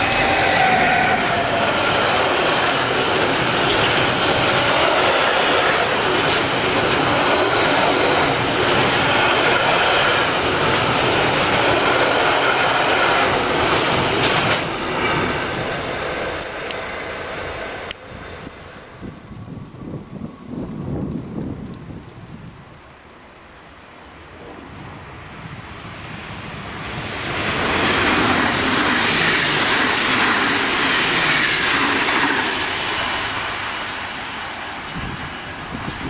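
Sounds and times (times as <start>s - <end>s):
wheels squealing on rail: 0.0s - 18.7s
freight train rolling past: 0.0s - 36.0s.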